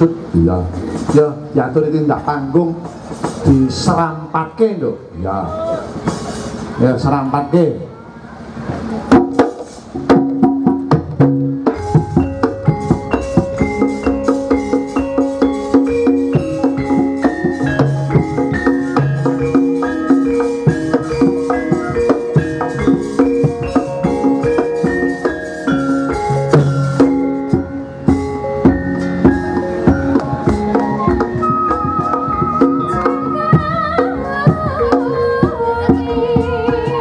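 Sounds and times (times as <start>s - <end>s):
drum strokes: 0.0s - 4.2s, 5.8s - 7.1s, 8.4s - 37.0s
metallophones and gongs ringing: 10.4s - 36.5s
high wavering melody: 11.7s - 37.0s.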